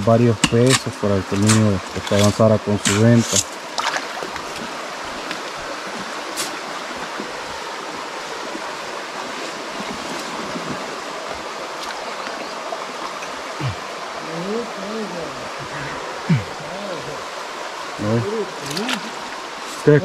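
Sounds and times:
creek water rushing: 0:00.0 - 0:20.0.

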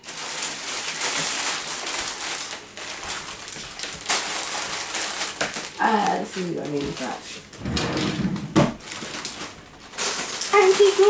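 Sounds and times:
plastic packaging crinkling: 0:00.0 - 0:07.6, 0:08.7 - 0:11.0.

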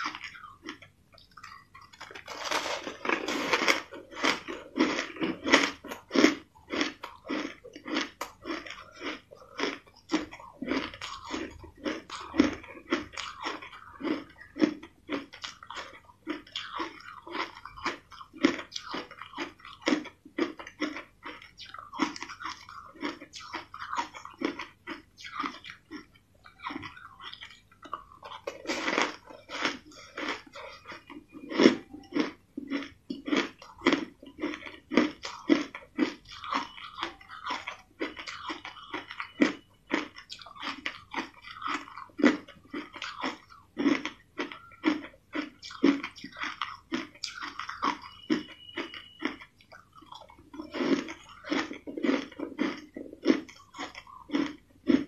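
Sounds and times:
crushed ice being chewed: 0:00.0 - 0:55.0.

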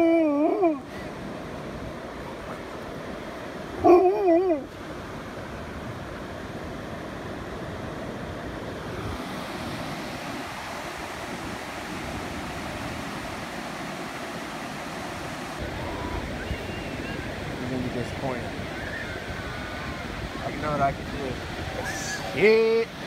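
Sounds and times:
wind on microphone: 0:00.0 - 0:22.4
ocean surf breaking: 0:00.0 - 0:23.0.

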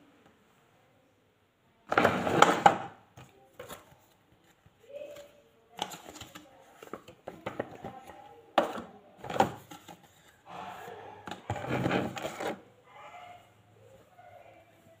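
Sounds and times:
paper and cardboard rustling: 0:03.2 - 0:10.4.

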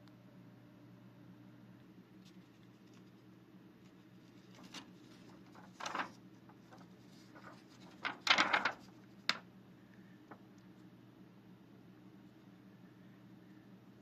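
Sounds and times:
faint low hum: 0:00.0 - 0:14.0
plastic film crinkling: 0:04.2 - 0:09.4.

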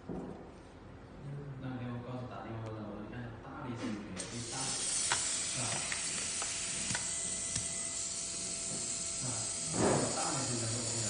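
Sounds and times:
dental handpiece hissing: 0:04.2 - 0:11.0
faint high whining tones: 0:04.3 - 0:11.0.

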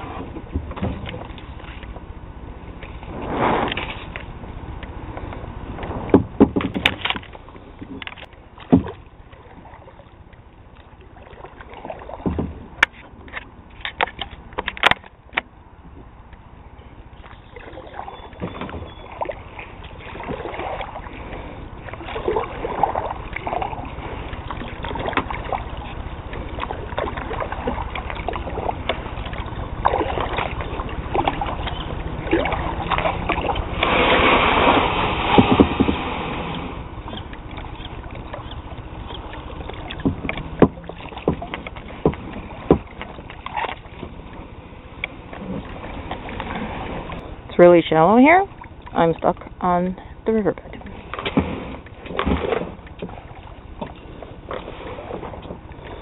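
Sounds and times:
paddle strokes splashing water: 0:00.0 - 0:16.1, 0:17.1 - 0:56.0
water dripping off paddle: 0:17.2 - 0:44.4.

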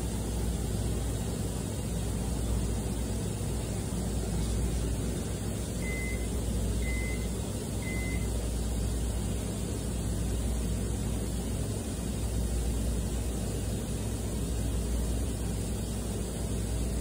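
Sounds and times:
short high beeps: 0:05.8 - 0:08.3.

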